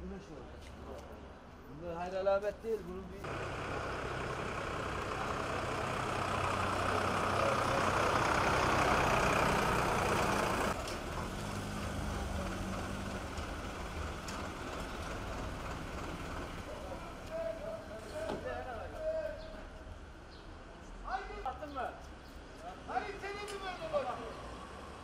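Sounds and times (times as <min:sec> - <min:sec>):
heavy vehicle engine hum: 0:03.2 - 0:17.8.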